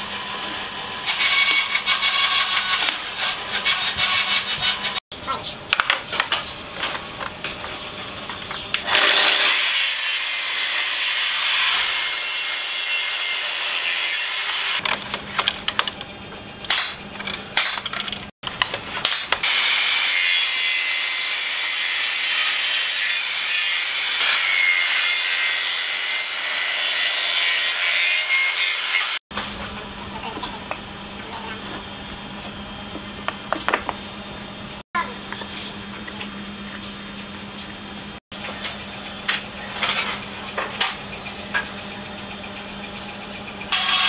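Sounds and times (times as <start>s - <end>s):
table saw cutting wood: 0.0s - 5.0s, 8.8s - 14.8s, 19.1s - 29.2s, 43.0s - 44.0s.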